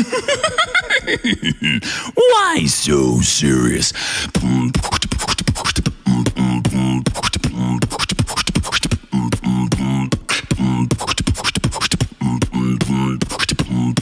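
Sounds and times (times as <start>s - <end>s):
beatboxing clicks and hums: 4.2s - 14.0s.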